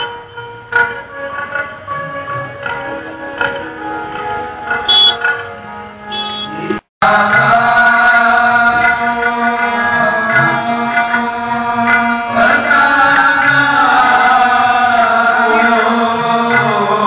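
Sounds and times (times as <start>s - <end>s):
harmonium drone: 0.0s - 17.0s
tabla strokes: 0.0s - 17.0s
voices singing a hymn: 7.0s - 17.0s.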